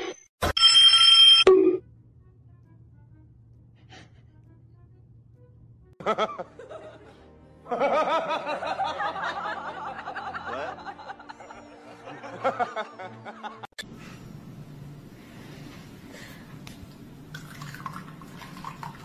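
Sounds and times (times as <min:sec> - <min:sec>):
person laughing: 0:06.0 - 0:13.7.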